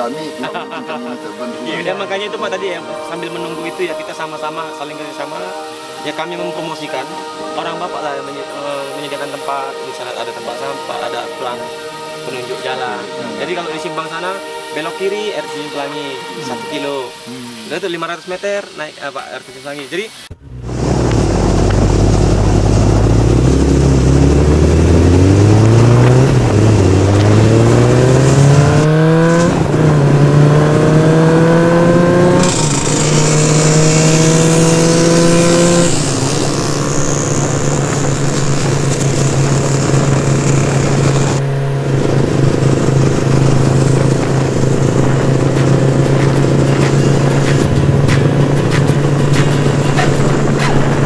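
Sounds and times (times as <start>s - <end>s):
engine accelerating through gears: 20.2s - 51.0s.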